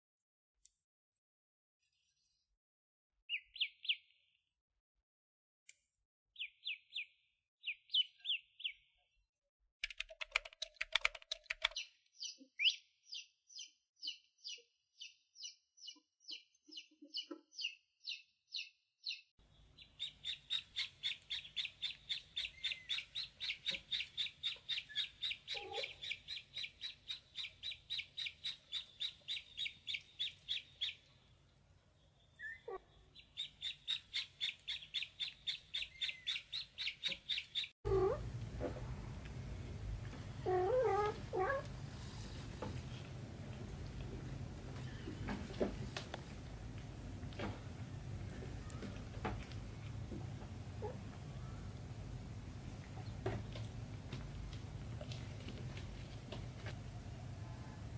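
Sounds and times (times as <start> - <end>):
ducklings peeping: 11.6 - 31.1, 32.4 - 38.8.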